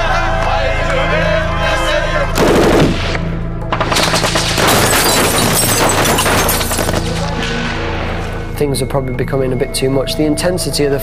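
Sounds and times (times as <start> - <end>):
low music drone: 6.7 - 11.0.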